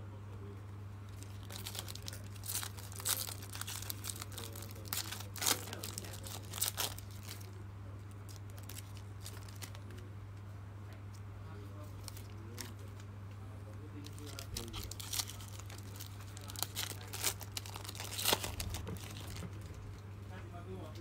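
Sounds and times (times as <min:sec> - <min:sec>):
low electrical hum: 0:00.0 - 0:21.0
foil wrapper tearing and crinkling: 0:01.1 - 0:07.6, 0:08.3 - 0:10.0, 0:12.0 - 0:12.9, 0:14.0 - 0:19.8.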